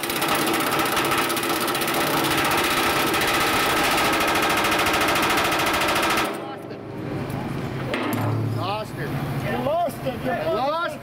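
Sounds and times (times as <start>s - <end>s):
pneumatic rivet gun hammering: 0.0s - 6.4s.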